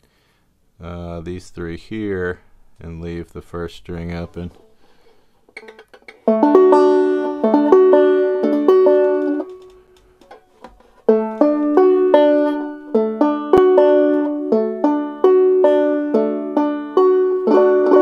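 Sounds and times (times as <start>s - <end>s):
banjo picking a chord: 5.6s - 9.6s, 10.2s - 18.0s.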